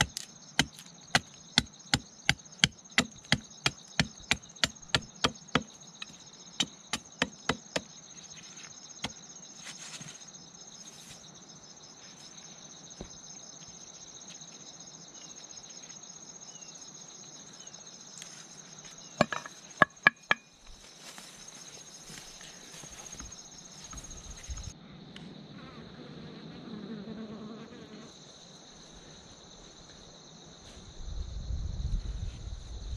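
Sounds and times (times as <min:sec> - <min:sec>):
machete chopping wood: 0:00.0 - 0:05.7
insects chirring: 0:00.0 - 0:32.9.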